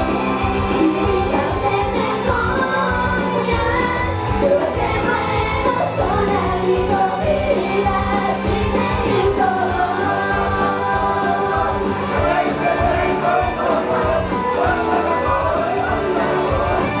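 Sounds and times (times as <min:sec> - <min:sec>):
woman singing: 0:00.0 - 0:14.2
band backing track: 0:00.0 - 0:17.0.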